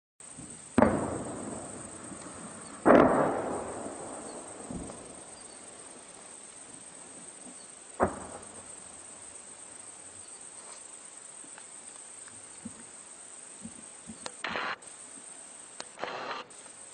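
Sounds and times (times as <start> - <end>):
explosion booms rumbling: 0.4 - 6.0
sharp bang: 2.8 - 5.5.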